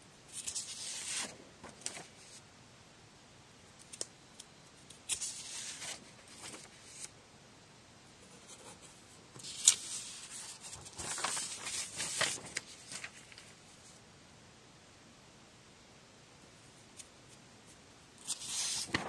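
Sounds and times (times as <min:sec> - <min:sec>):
paper pages rustling: 0:00.3 - 0:02.4, 0:05.0 - 0:07.1, 0:08.4 - 0:13.6, 0:18.2 - 0:19.0
sharp paper snap: 0:03.8 - 0:05.9.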